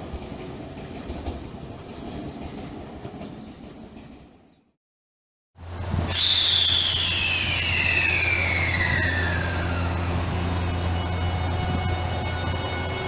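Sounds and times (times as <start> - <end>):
electric train motor whine: 5.6 - 13.0
low hum: 5.6 - 13.0.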